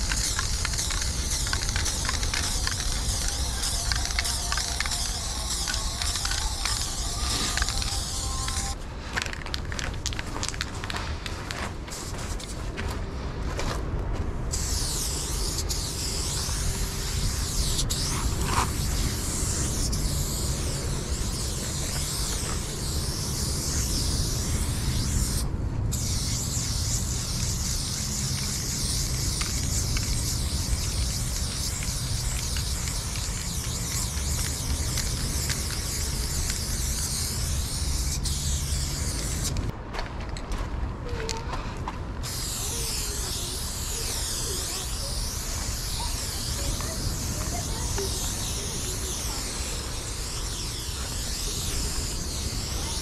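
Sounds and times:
spray paint can hissing: 0:00.0 - 0:12.7, 0:14.5 - 0:39.7, 0:42.2 - 0:53.0
steady low rumble: 0:00.0 - 0:53.0.

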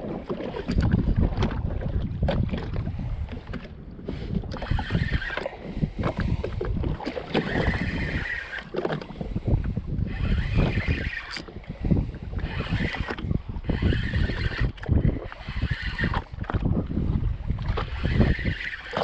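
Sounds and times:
water lapping: 0:00.0 - 0:19.0
wind buffeting microphone: 0:00.0 - 0:19.0
fishing reel winding: 0:04.5 - 0:06.6, 0:07.2 - 0:16.5, 0:17.6 - 0:19.0.

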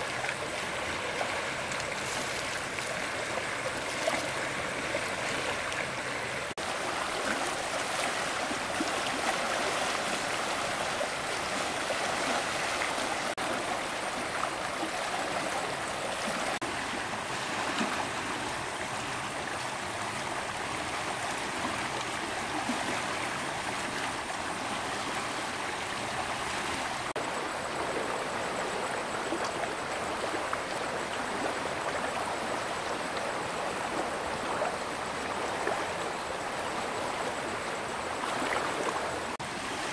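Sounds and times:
stream flowing: 0:00.0 - 0:39.9.

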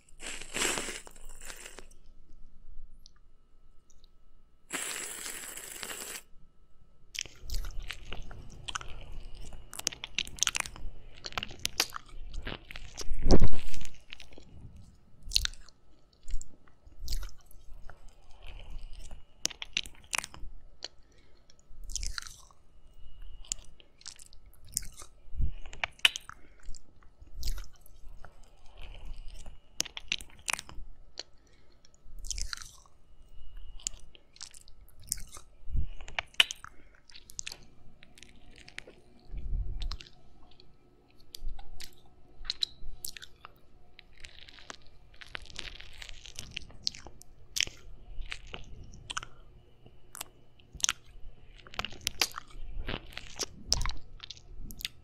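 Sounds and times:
wet mouth sounds licking and sucking: 0:00.1 - 0:02.0, 0:04.7 - 0:06.3, 0:32.2 - 0:32.9, 0:50.1 - 0:55.0.

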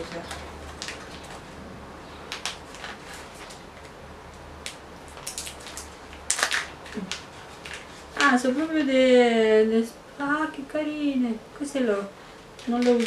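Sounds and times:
wrapping crinkling and rustling: 0:00.0 - 0:09.0, 0:12.6 - 0:13.0.

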